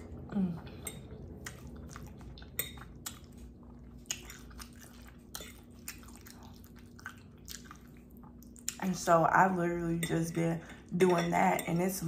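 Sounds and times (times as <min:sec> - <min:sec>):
wet mouth chewing: 0:00.1 - 0:08.9.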